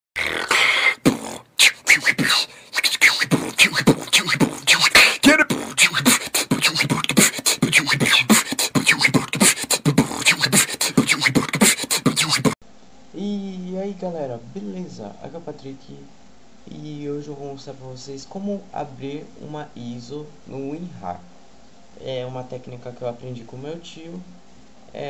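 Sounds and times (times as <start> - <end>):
beatboxing: 0.2 - 12.6.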